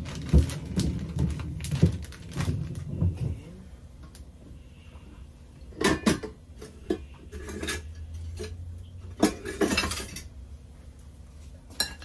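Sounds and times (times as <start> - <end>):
spoon scraping dishes: 6.6 - 8.6.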